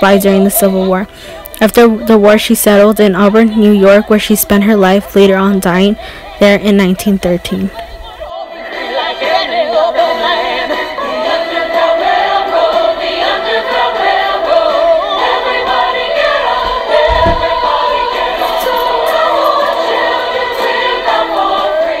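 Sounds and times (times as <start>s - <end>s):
choir singing: 0.0s - 22.0s
short low thud: 17.1s - 17.6s.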